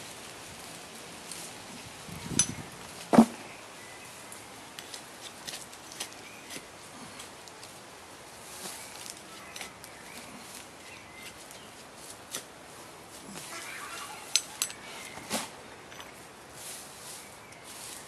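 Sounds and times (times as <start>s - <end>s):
plant clump rustling: 0.2s - 18.0s
trowel scraping through soil: 13.3s - 18.0s.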